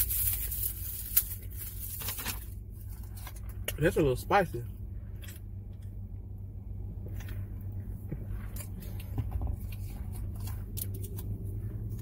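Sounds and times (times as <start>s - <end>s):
low hum inside car: 0.0s - 12.0s
chewing: 8.1s - 12.0s.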